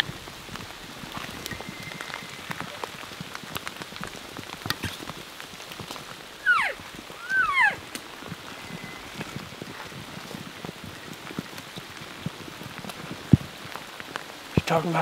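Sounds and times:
steady rain: 0.0 - 15.0.

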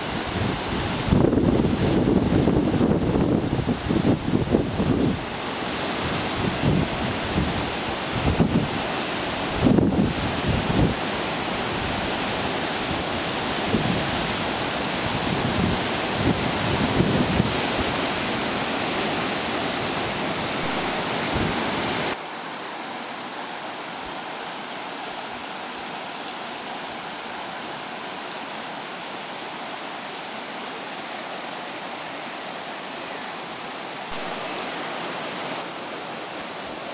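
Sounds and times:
wind buffeting microphone: 0.0 - 5.3, 5.9 - 22.2
waterfall rushing over rock: 0.0 - 36.9.

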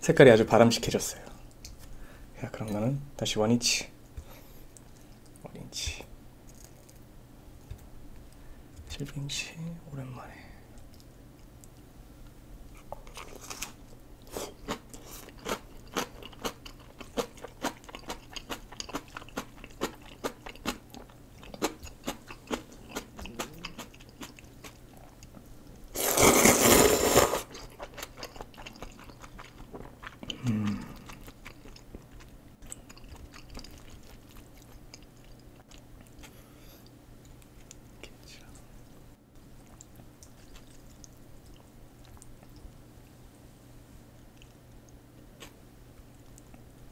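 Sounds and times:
crunchy chewing: 12.7 - 43.1
loud noodle slurp: 26.0 - 27.6.

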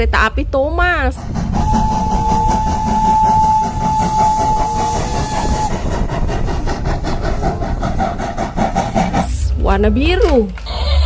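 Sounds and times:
toy train chugging: 1.1 - 9.5.

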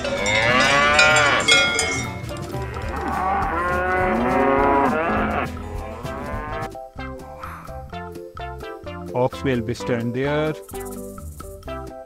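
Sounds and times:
cattle mooing: 0.0 - 6.7.

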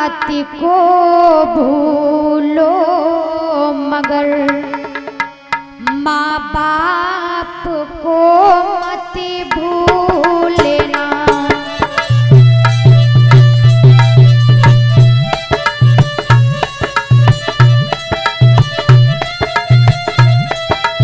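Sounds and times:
fast tabla strokes: 0.0 - 0.8, 4.0 - 7.6, 8.5 - 21.0
woman singing: 0.0 - 5.1, 5.8 - 12.0
held melody notes: 10.2 - 21.0.

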